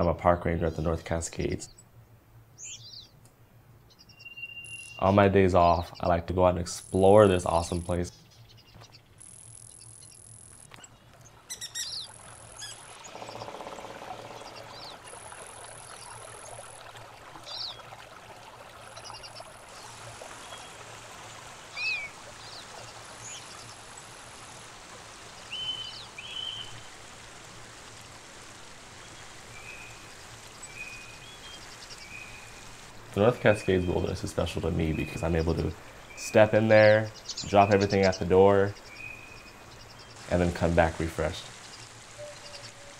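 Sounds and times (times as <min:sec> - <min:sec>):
bird chirps: 0:02.6 - 0:03.2, 0:03.9 - 0:16.7, 0:33.3 - 0:40.4, 0:41.4 - 0:42.9
stream running over rocks: 0:09.8 - 0:42.9.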